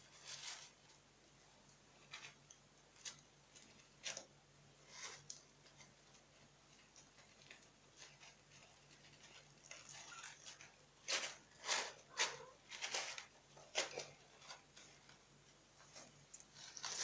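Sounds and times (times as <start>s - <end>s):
kittens scratching in litter: 0.0s - 1.0s, 1.9s - 17.0s.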